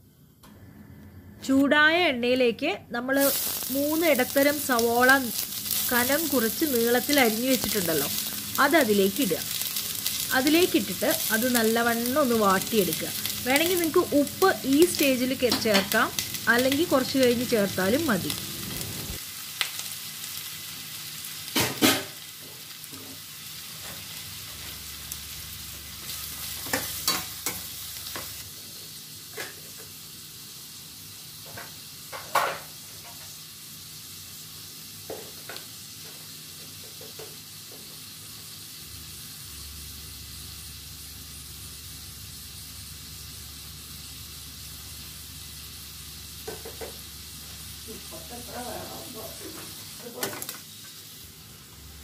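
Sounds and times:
onions sizzling in hot oil: 3.0 - 52.0.

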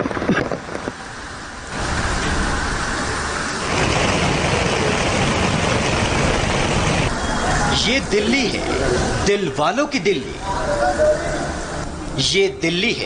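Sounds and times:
car engine noise: 0.0 - 10.6.

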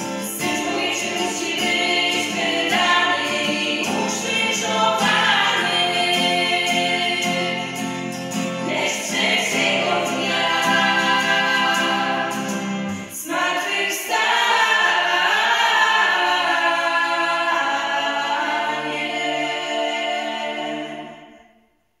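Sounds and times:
acoustic guitar strums: 0.0 - 13.2
vocal group singing in harmony: 0.0 - 21.8.

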